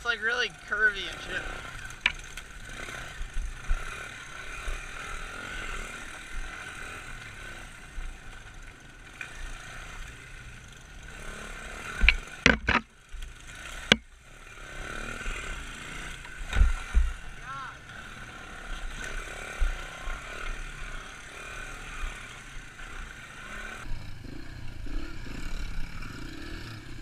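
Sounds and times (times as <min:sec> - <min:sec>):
bike rattling: 0:00.0 - 0:27.0
motorbike engine running: 0:00.0 - 0:27.0.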